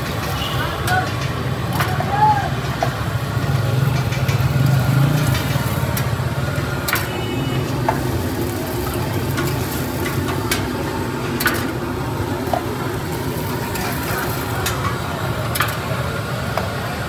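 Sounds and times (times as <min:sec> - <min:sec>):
food sizzling on a griddle: 0:01.8 - 0:17.0.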